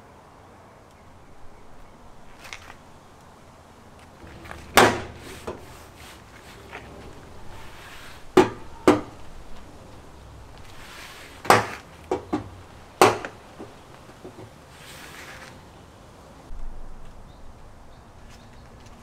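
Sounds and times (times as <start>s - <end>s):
hands rustling: 1.4s - 15.7s.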